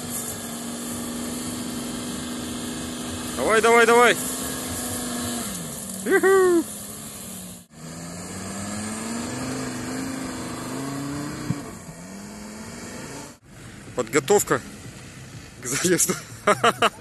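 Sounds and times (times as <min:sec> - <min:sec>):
car engine pulling under load: 0:00.0 - 0:17.0
brief shout: 0:06.1 - 0:06.7.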